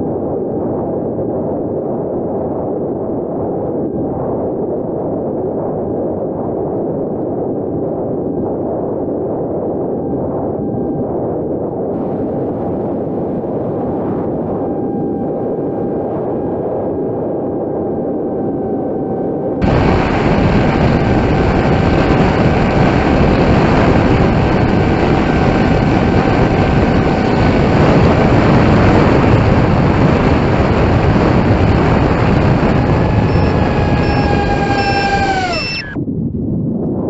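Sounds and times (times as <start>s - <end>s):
wind rushing over microphone: 0.0s - 37.0s
electric motor and propeller whine: 8.0s - 36.0s.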